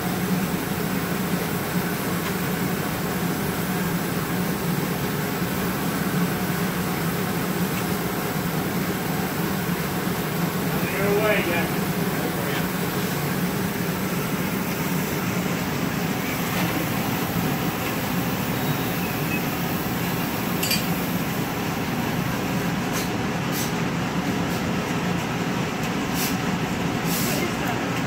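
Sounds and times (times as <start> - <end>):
gas burners roaring: 0.0 - 28.0
brief high hisses: 26.2 - 26.4, 27.1 - 27.4.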